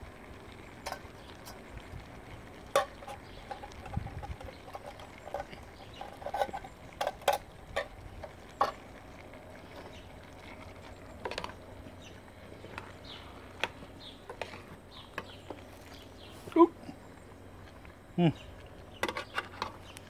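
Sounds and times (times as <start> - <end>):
metal can and spoon clicking on pot: 2.7 - 8.8.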